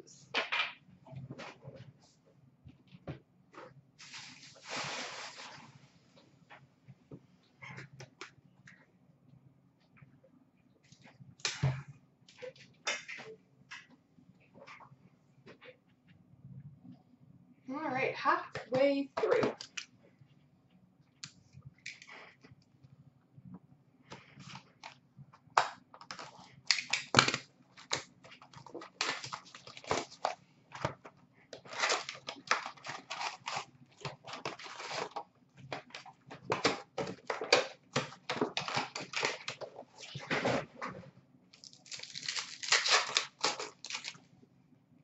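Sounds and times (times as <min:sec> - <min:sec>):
plastic wrappers crinkling and tearing: 0:25.9 - 0:31.0, 0:31.6 - 0:40.4, 0:41.6 - 0:44.2.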